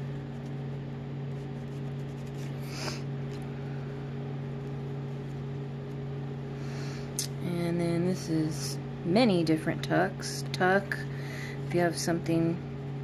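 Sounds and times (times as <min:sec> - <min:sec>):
low mechanical hum: 0:00.0 - 0:13.0
pages rustling: 0:00.1 - 0:03.4.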